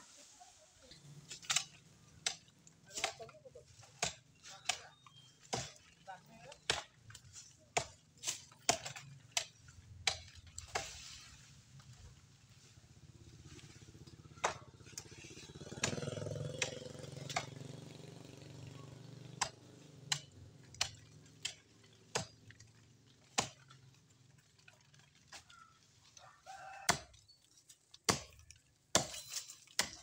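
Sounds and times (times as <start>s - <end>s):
motorcycle engine passing: 12.8s - 20.6s.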